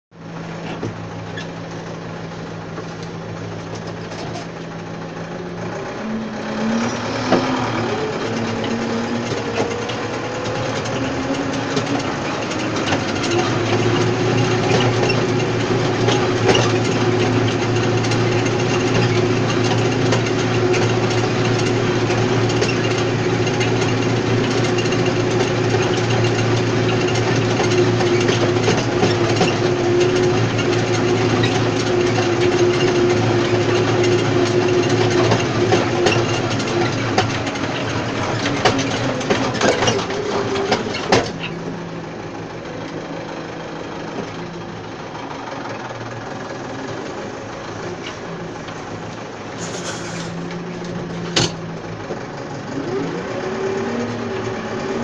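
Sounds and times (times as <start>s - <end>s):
tractor engine running: 0.1s - 55.0s
machinery knocks and rattles: 0.5s - 43.1s.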